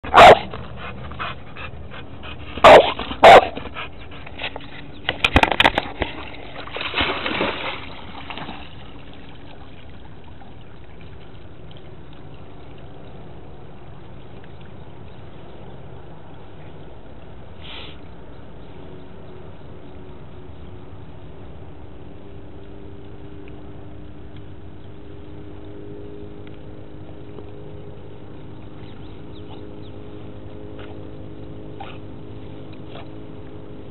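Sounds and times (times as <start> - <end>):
dog barking and yipping: 0.1 - 0.5, 2.6 - 3.6
splash and sloshing water: 4.4 - 15.6.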